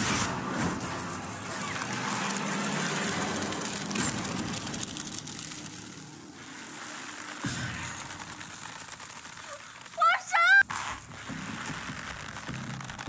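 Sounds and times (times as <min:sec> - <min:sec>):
rushing rustling vines: 0:00.0 - 0:13.0.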